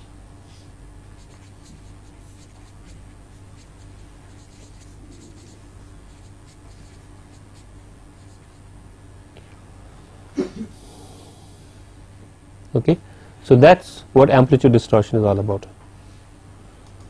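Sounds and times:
low electrical hum: 0.0s - 17.0s
pen scratching: 1.2s - 8.6s.

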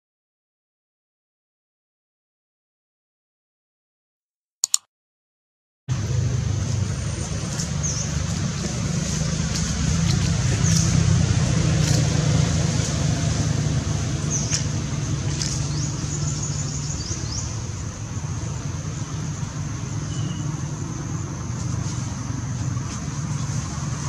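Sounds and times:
road traffic rumble: 5.9s - 24.0s.

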